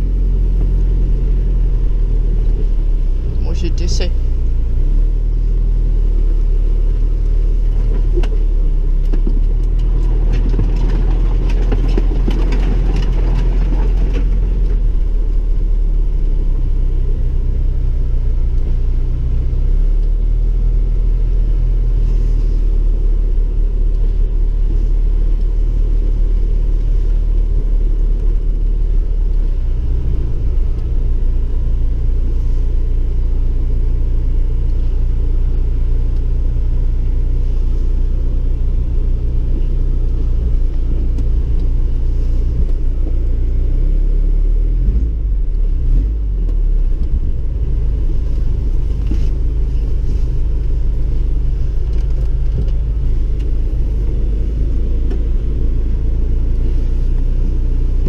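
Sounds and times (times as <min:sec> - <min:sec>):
car engine rumble: 0:00.0 - 0:58.0
rough crackling noise: 0:00.0 - 0:58.0
man speaking: 0:03.3 - 0:04.2.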